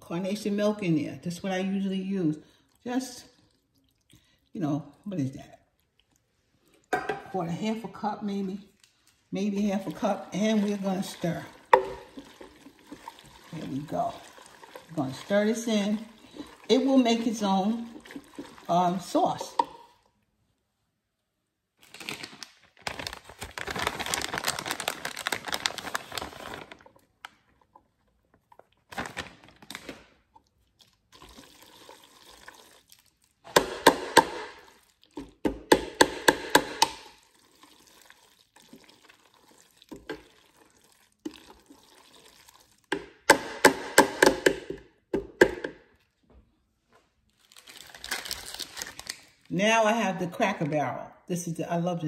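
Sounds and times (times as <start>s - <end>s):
plastic bag crinkling: 21.8s - 30.5s, 47.2s - 49.6s.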